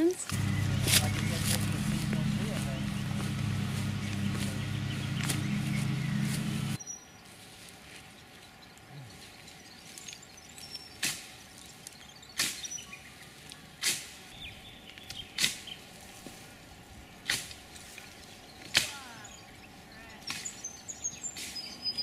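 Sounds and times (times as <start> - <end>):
dry stems snapping: 0.3 - 6.5, 17.2 - 19.0.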